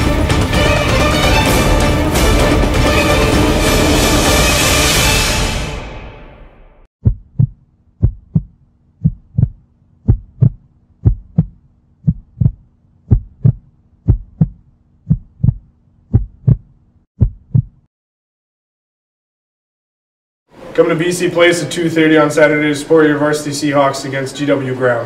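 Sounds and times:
heartbeat thumps: 7.0 - 17.9.

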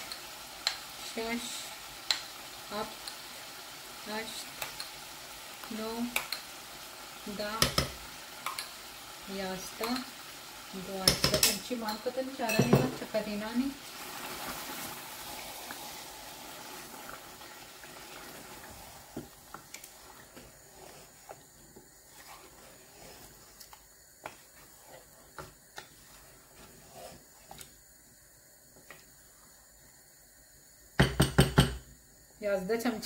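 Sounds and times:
soft sizzle in pot: 0.0 - 31.0, 31.6 - 33.0
spatula scraping and knocking pot: 19.2 - 27.7.

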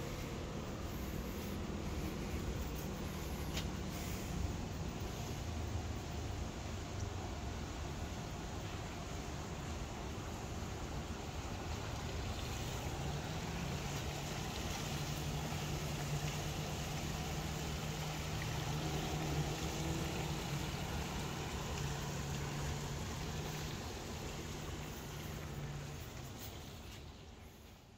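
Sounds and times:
motorboat engine humming: 0.0 - 27.8
rushing water: 0.0 - 27.9
wind: 0.0 - 27.9.

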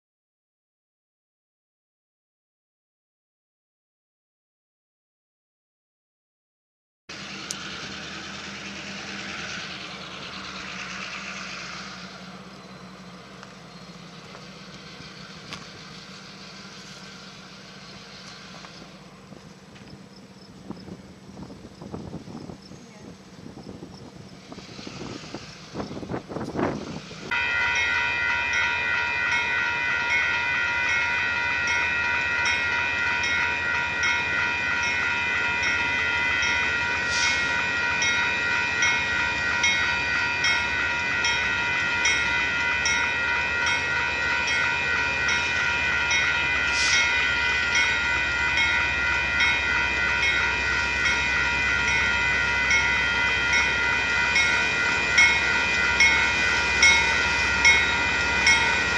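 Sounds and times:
crossing warning bell ringing: 7.1 - 21.2, 27.2 - 58.9
freight train rumbling: 7.1 - 58.9.

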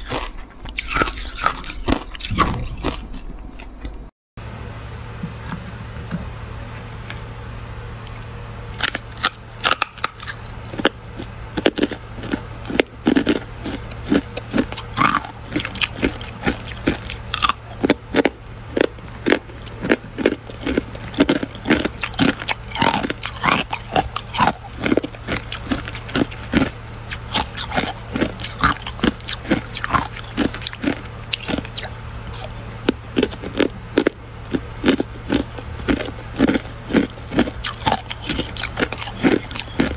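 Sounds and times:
ice cubes crunching: 0.0 - 3.7, 8.8 - 39.9
low hum: 0.0 - 39.9.

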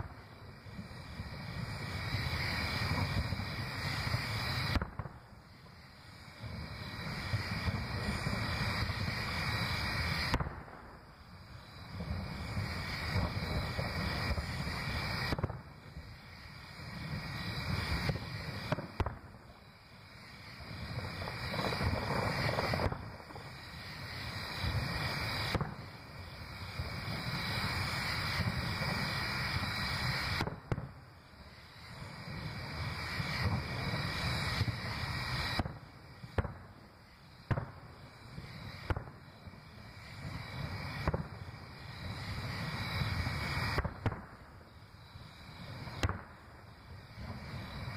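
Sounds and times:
fireworks booming: 0.0 - 47.9
sharp firework cracks: 0.0 - 47.9.

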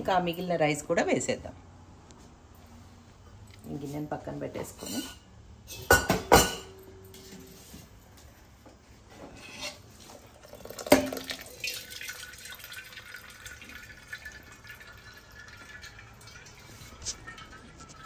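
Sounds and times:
light water sounds: 9.9 - 18.0.

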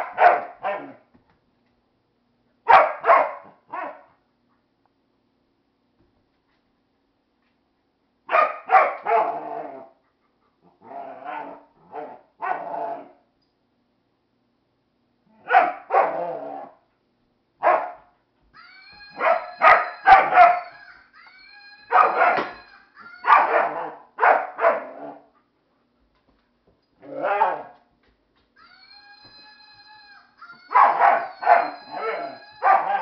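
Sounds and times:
dog barking: 0.0 - 1.0, 2.7 - 4.1, 8.3 - 9.4, 15.4 - 16.3, 17.6 - 18.1, 19.2 - 20.8, 21.9 - 22.6, 23.2 - 25.0, 27.1 - 27.8, 30.7 - 33.0
high wavering squeal: 18.6 - 23.1, 28.6 - 33.0.

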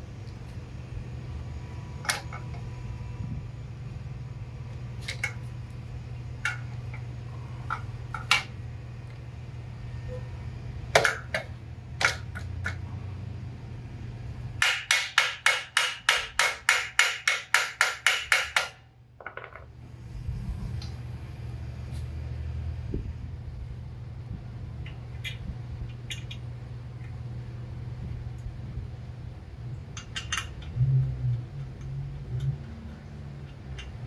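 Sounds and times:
tool knocks and clicks: 14.6 - 19.7.

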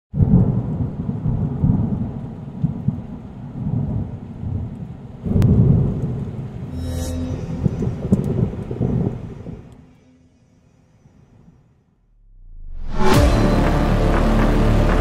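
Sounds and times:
thunder rumbling: 0.2 - 6.7, 7.5 - 9.8.

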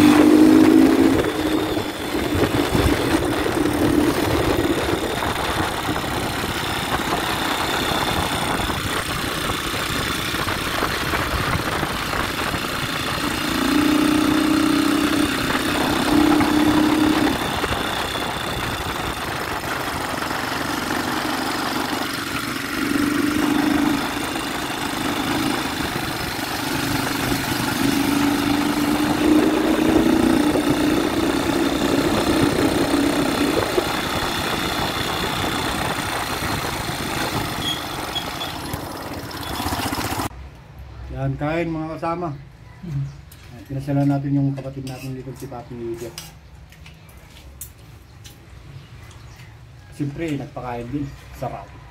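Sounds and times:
wind rushing over microphone: 0.0 - 13.5, 14.9 - 20.8, 25.6 - 38.1
atv engine revving: 0.0 - 40.3.

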